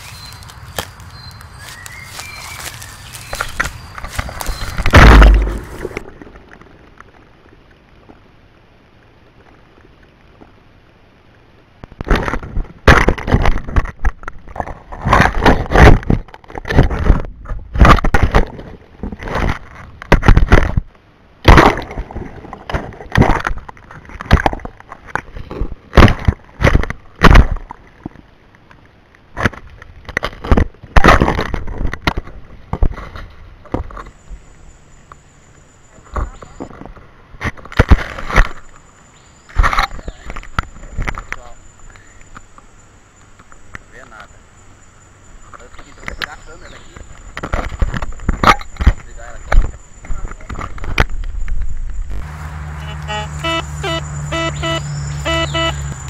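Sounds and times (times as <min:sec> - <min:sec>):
thump: 0:04.8 - 0:06.0.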